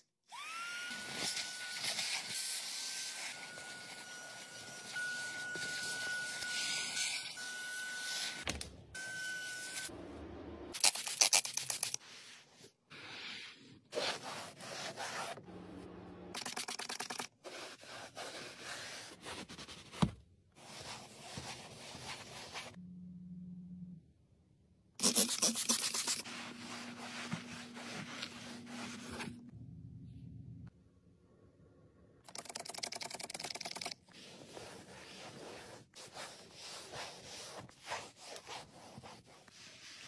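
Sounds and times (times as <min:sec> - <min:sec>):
vacuum nozzle whistling: 0:00.3 - 0:08.4
towel rubbing over liner: 0:25.0 - 0:29.4, 0:34.2 - 0:40.0.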